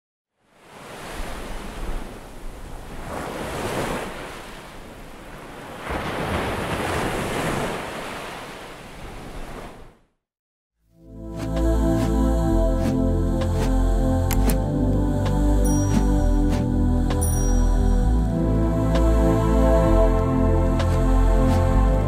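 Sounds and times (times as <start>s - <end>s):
waves breaking on a beach: 0.4s - 10.0s.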